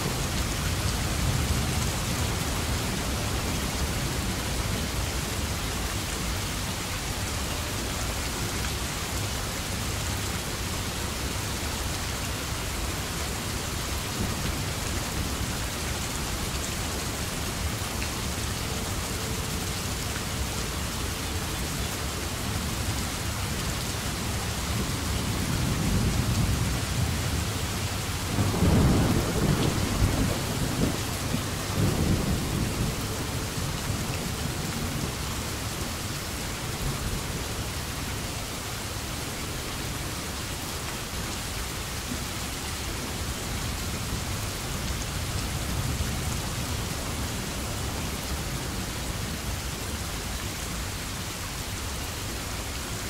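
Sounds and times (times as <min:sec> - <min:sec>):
steady rain hissing: 0:00.0 - 0:53.0
thunder rumble: 0:28.3 - 0:35.1.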